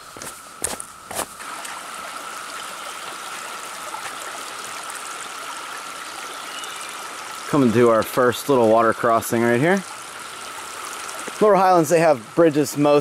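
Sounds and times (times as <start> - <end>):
creek flowing: 0.2 - 13.0.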